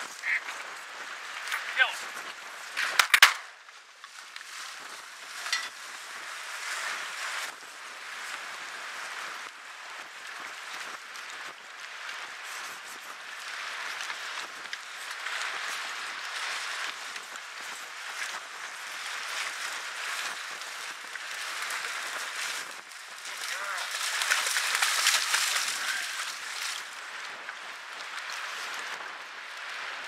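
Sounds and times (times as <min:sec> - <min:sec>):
dog splashing through water: 0:21.2 - 0:26.9.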